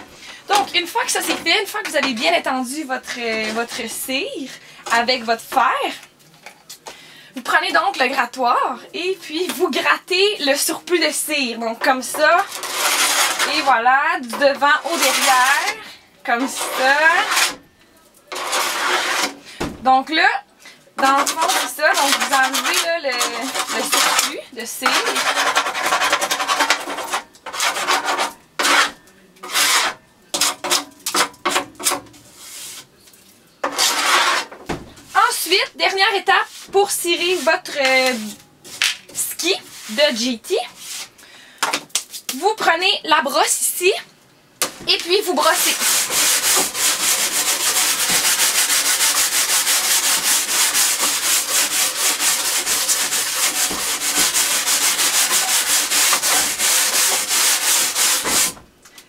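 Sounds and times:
wax scraper scraping ski: 0.6s - 4.0s, 12.1s - 13.8s, 14.4s - 15.8s, 16.4s - 17.6s, 18.3s - 19.4s, 21.0s - 32.9s, 33.6s - 34.5s, 36.4s - 38.3s, 45.0s - 58.6s.

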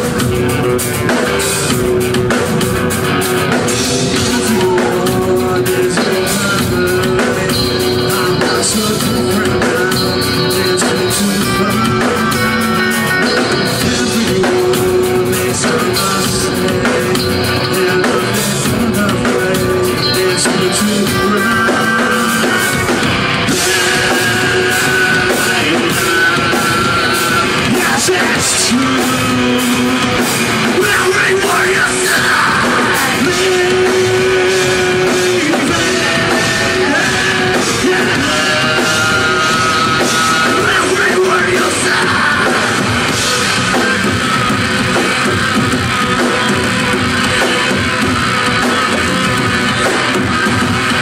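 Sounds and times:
rock band playing live: 0.0s - 51.0s.

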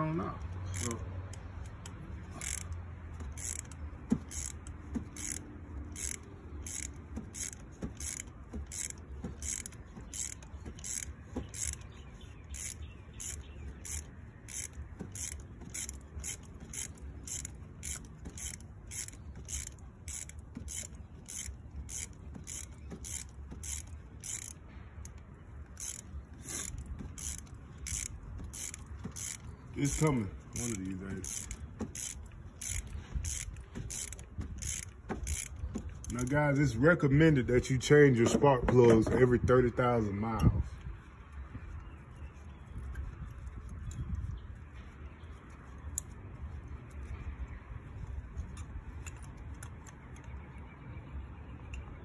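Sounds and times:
ratchet clicking: 0.3s - 36.8s.

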